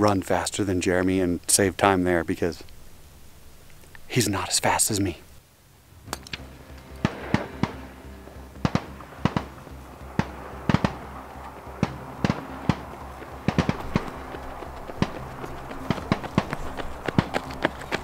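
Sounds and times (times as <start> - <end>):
pistol shots: 7.0 - 7.9, 8.6 - 9.6, 10.2 - 11.1, 11.8 - 12.8, 13.4 - 14.2.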